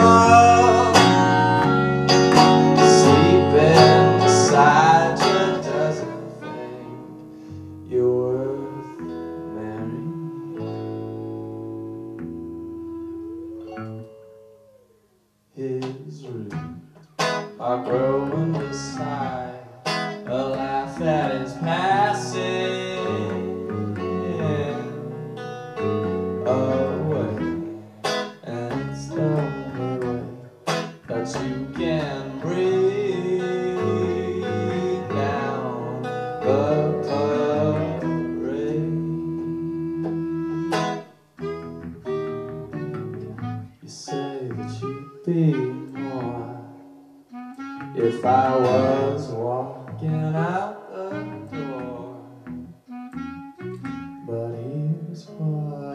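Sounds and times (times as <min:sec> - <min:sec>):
man singing: 0:00.0 - 0:07.2, 0:07.8 - 0:10.7, 0:15.6 - 0:16.8, 0:17.6 - 0:40.2, 0:43.3 - 0:46.8, 0:47.8 - 0:52.4, 0:54.2 - 0:55.9
live band music: 0:00.0 - 0:15.1, 0:16.3 - 0:54.8
guitar accompaniment: 0:00.0 - 0:55.9.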